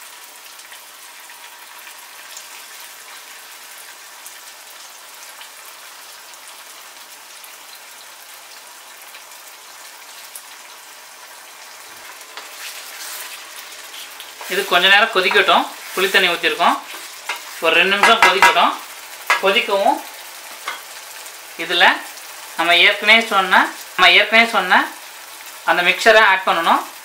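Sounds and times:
gravy sizzling and bubbling: 0.0s - 27.0s
spatula stirring: 11.9s - 19.6s, 20.5s - 21.0s.

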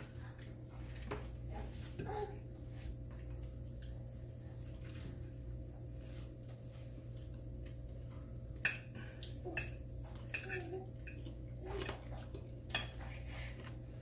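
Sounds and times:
steady low hum: 0.0s - 14.0s
forks ticking on plates: 8.6s - 12.0s.

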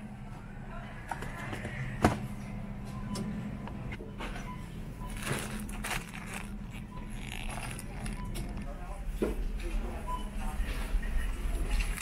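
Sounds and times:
freezer hum: 0.0s - 12.0s
packaging crinkling and rustling: 5.1s - 8.8s.

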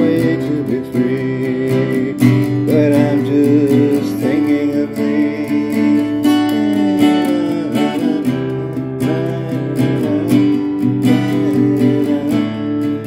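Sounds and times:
acoustic guitar strumming: 0.0s - 13.0s
sliding melody line: 0.0s - 13.0s.

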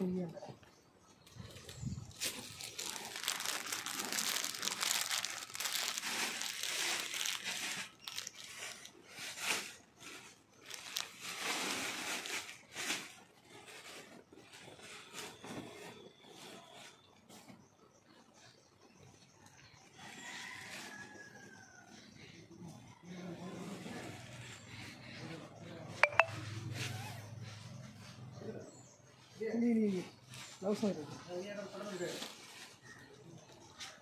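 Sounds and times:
protective coverall rustling: 1.4s - 13.2s.

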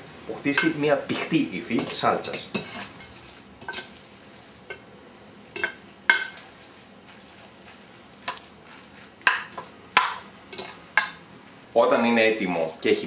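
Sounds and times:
wet pasta stirring: 0.5s - 4.9s, 5.5s - 11.8s
utensils clinking against bowl: 1.7s - 4.0s, 5.6s - 6.4s, 9.3s - 11.2s.

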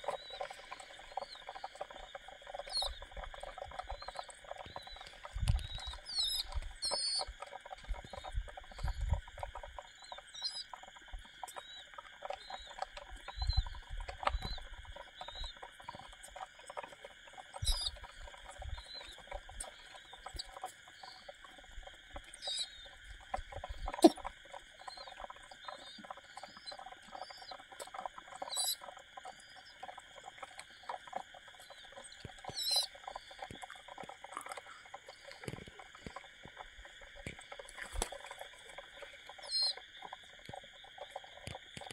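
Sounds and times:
wing flutter: 23.6s - 41.9s.

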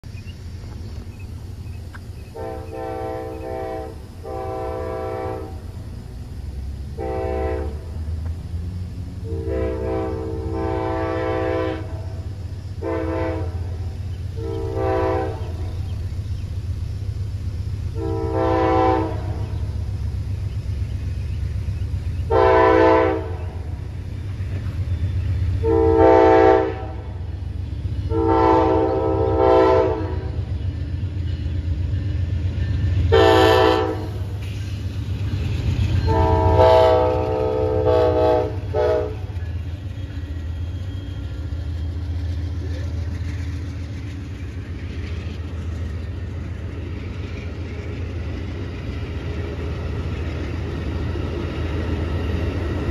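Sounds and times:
low rumble of train: 0.0s - 52.9s
locomotive horn blasts: 2.3s - 5.6s, 7.0s - 8.0s, 9.2s - 15.8s, 17.9s - 19.6s, 22.3s - 23.7s, 25.6s - 27.2s, 28.1s - 30.5s, 33.0s - 34.3s, 35.9s - 39.4s.

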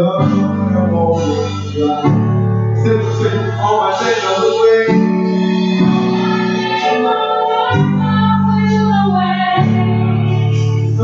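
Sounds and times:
keyboard chords: 0.0s - 11.0s
women singing gospel: 5.4s - 11.0s.

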